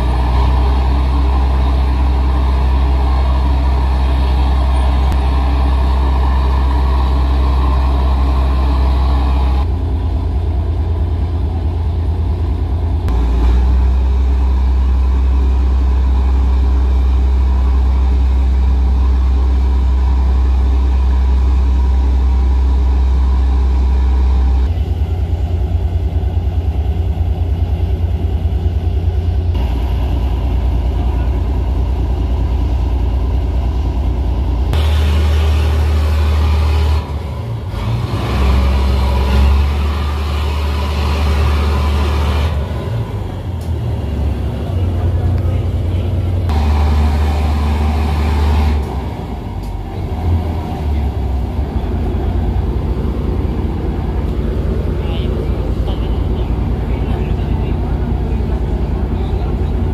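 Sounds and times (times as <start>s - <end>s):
ship diesel engines droning: 0.0s - 59.9s.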